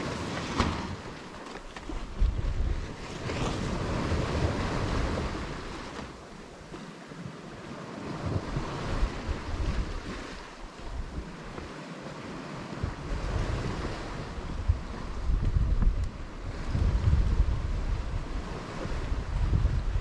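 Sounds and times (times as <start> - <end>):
water rushing along hull: 0.0 - 20.0
wind buffeting microphone: 1.8 - 5.9, 8.1 - 11.7, 12.5 - 20.0.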